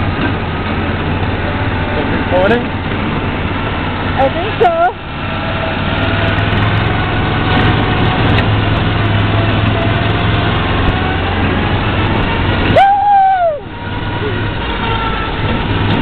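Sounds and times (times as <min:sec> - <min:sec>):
buggy engine running: 0:00.0 - 0:16.0
loud shout: 0:12.7 - 0:14.4.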